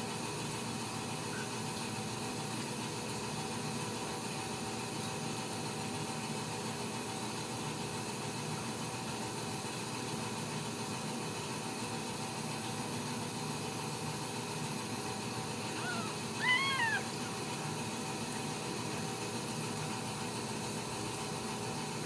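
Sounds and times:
faint hum: 15.3 - 18.6
kitten mewing: 15.7 - 17.4.

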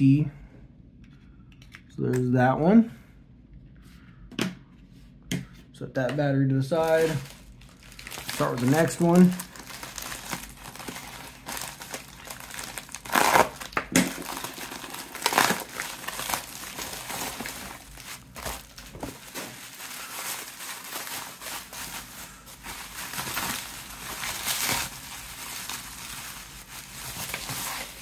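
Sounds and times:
plastic bag and bubble wrap crinkling: 6.8 - 28.0.

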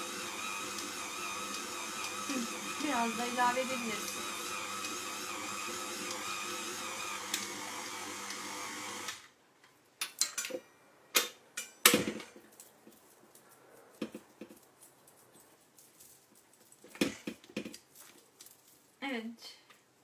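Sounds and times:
stand mixer motor whining: 0.0 - 9.2.

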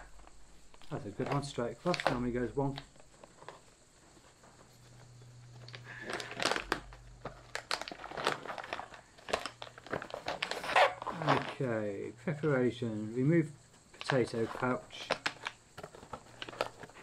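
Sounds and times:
food pouch crinkling: 5.5 - 11.7, 14.0 - 17.0.

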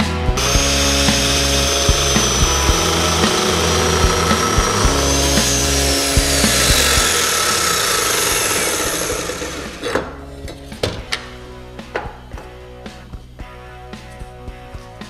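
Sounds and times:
mitre saw motor winding down: 0.4 - 10.1.

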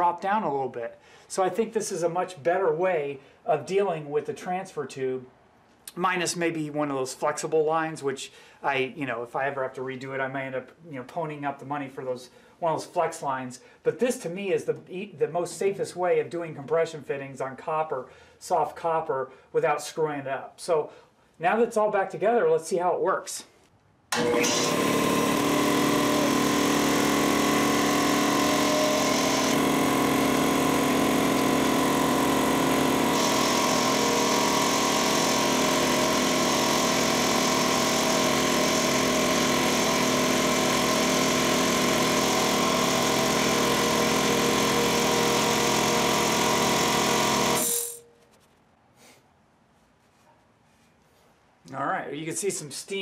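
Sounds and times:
air compressor running: 24.2 - 48.0.

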